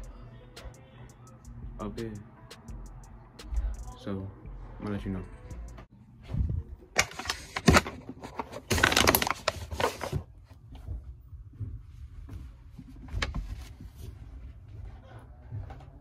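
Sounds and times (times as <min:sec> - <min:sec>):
faint knocks and shuffling: 0:09.5 - 0:16.0.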